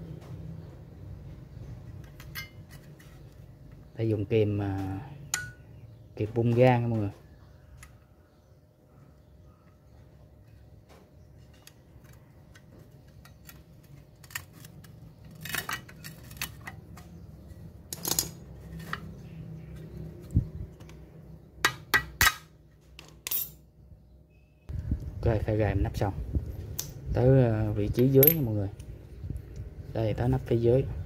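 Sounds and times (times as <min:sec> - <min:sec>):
metal clicks of pliers: 0:26.7 - 0:27.0.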